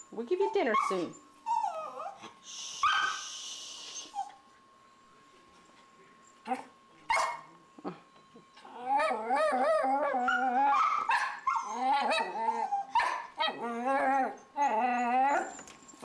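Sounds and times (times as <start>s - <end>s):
dog whining howls: 0.6s - 2.2s, 8.6s - 15.7s.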